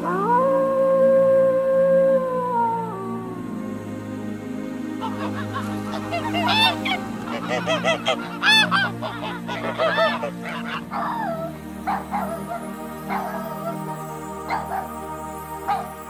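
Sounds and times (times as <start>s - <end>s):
soft background music: 0.0s - 16.0s
geese honking: 5.0s - 16.0s.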